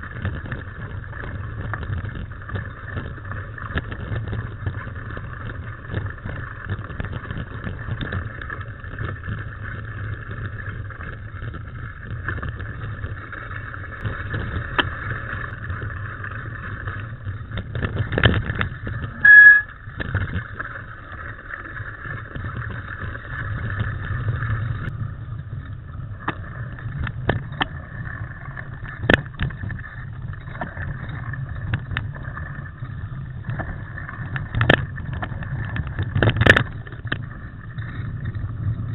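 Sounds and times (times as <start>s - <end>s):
wind on microphone: 0.0s - 20.8s, 21.8s - 38.9s
bike knocking and rattling: 0.0s - 38.9s
short high-pitched tone: 19.1s - 19.7s.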